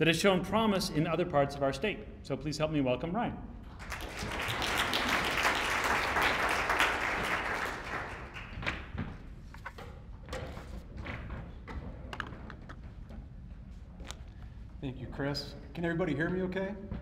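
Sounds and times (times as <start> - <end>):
audience applauding: 3.8 - 8.7.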